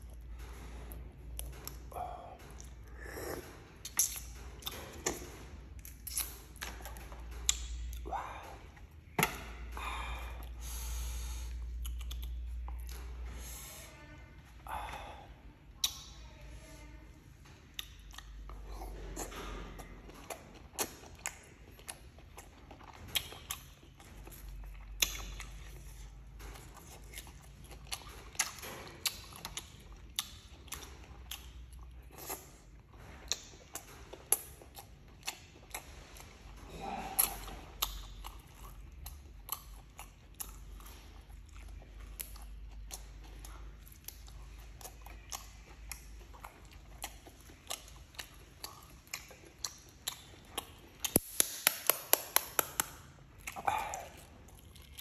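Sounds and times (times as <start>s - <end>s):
person chewing and crunching: 0.0s - 13.4s, 17.2s - 55.0s.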